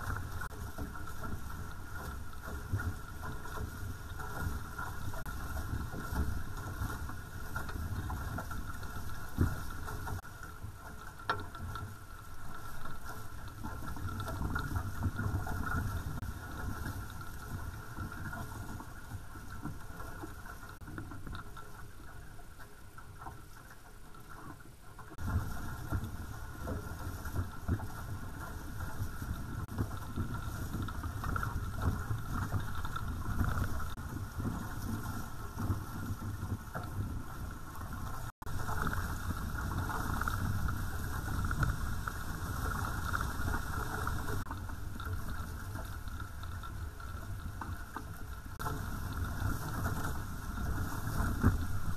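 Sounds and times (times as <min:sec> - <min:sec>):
water rushing past boat hulls: 0:00.0 - 0:51.9.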